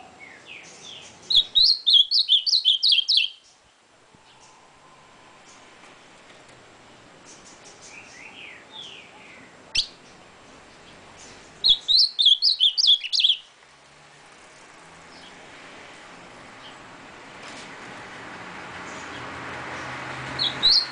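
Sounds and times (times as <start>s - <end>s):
bird singing: 0.0s - 5.7s, 6.9s - 13.6s, 14.4s - 15.4s, 18.9s - 20.9s.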